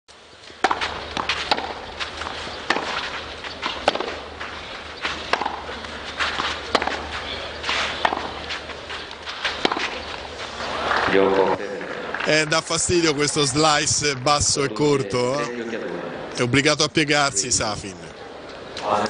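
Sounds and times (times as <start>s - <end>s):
crowd hum: 0.1s - 19.0s
racquets hitting tennis ball: 0.4s - 13.0s
ball bouncing: 0.6s - 10.3s
shoes scuffing on clay: 0.6s - 10.8s.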